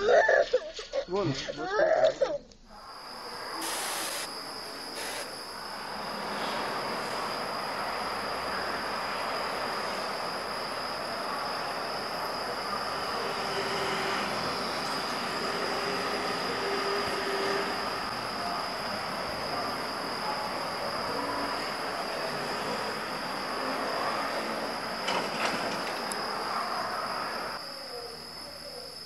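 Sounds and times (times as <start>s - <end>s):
high-pitched whine: 2.6s - 29.0s.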